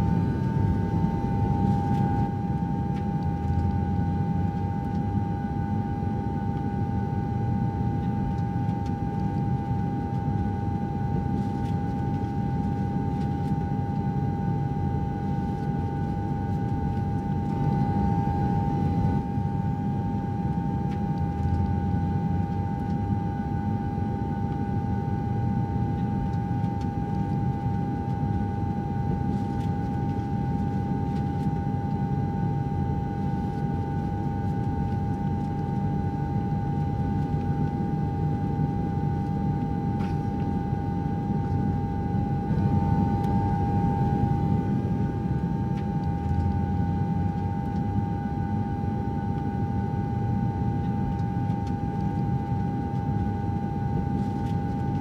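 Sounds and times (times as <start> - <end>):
constant whine: 0.0 - 55.0.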